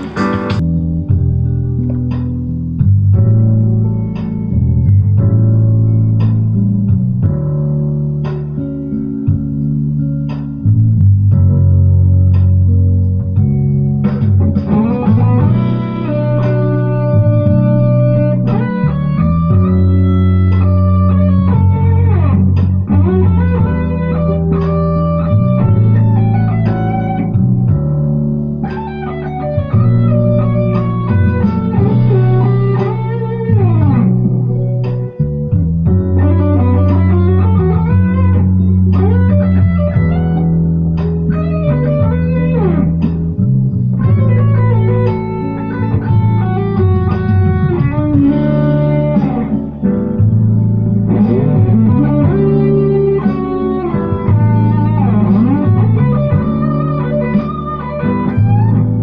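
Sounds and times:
jazzy backing track with bass: 0.0s - 59.0s
electric guitar solo with bends: 13.3s - 59.0s.

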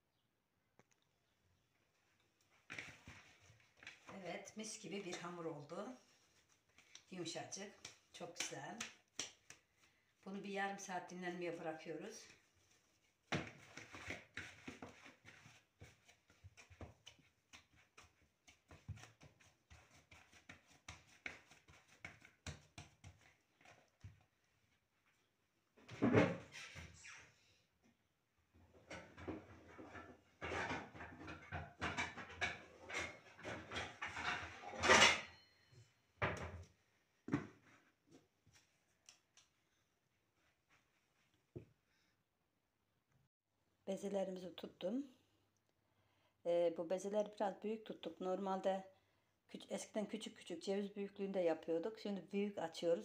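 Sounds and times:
patting dough in plastic bowl: 2.5s - 25.0s.

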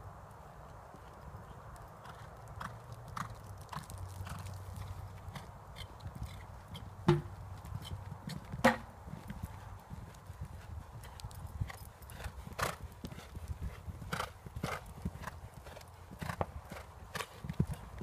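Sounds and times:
horse cantering on sand: 0.0s - 18.0s
sharp knocks: 7.1s - 7.3s.

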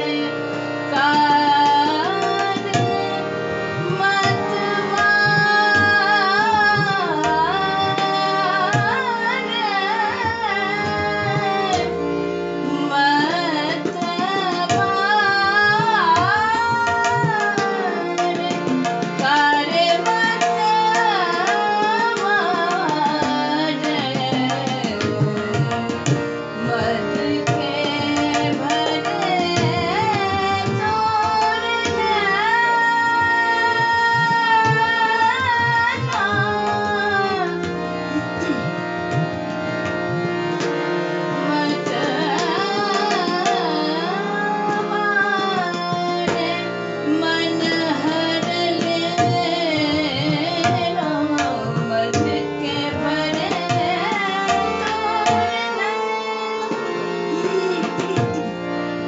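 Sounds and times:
woman singing classical vocals: 3.8s - 11.9s, 12.8s - 25.0s, 26.6s - 37.6s, 41.5s - 56.1s.

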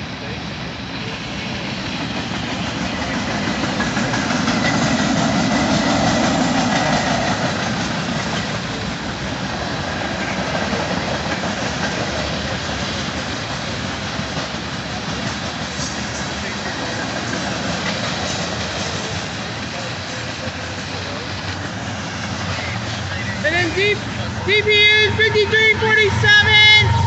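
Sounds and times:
freight train cars rolling past: 0.0s - 27.0s.

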